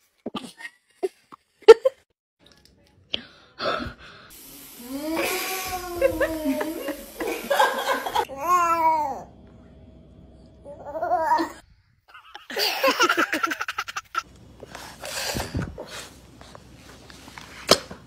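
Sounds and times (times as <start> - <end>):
young children laughing: 5.2 - 8.4, 10.8 - 14.3.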